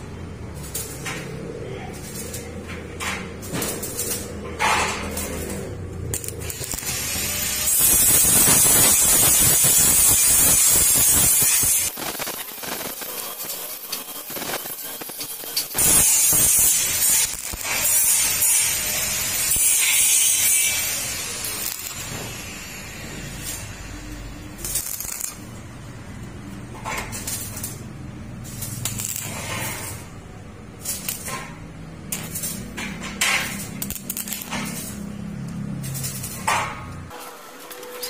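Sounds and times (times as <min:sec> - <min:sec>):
welding arc crackling: 0:00.0 - 0:38.0.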